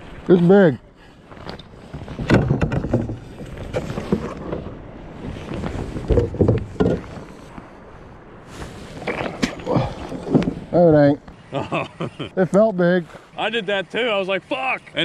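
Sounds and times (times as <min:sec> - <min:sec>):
water sloshing: 0:00.0 - 0:11.5.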